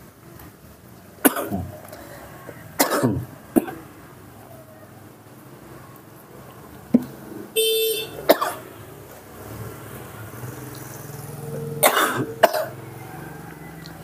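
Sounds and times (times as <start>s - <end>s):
vehicle horn toot: 7.6s - 8.2s.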